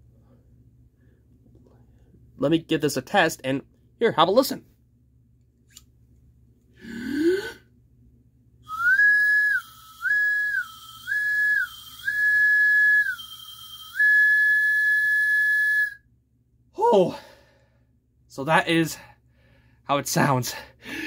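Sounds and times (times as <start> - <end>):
slide whistle pitch jumping: 8.7 - 16.0.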